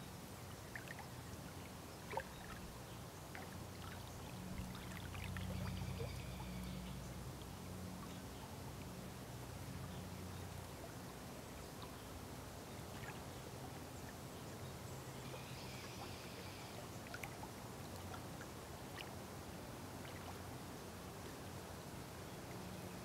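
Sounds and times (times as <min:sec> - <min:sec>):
low steady hum: 0:00.0 - 0:23.0
small waves lapping: 0:00.4 - 0:23.0
little ticks and splashes: 0:00.6 - 0:01.3, 0:02.0 - 0:02.6, 0:03.2 - 0:06.4, 0:17.0 - 0:19.2, 0:20.0 - 0:20.5.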